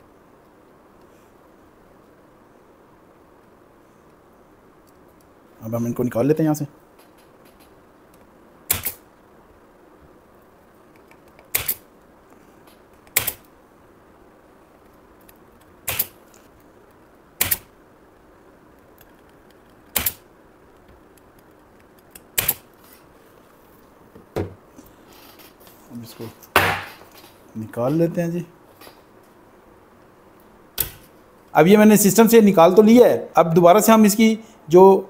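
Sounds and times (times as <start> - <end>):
sharp clicks: 7.0 - 9.0, 10.9 - 11.8, 12.7 - 13.5, 14.8 - 16.4, 17.4 - 17.7, 18.8 - 20.2, 20.8 - 22.7, 30.8 - 31.1.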